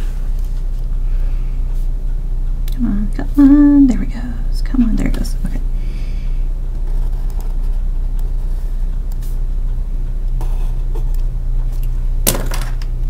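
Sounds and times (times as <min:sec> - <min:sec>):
low electrical hum: 0:00.0 - 0:13.0
pencil scratching on paper: 0:10.4 - 0:11.1.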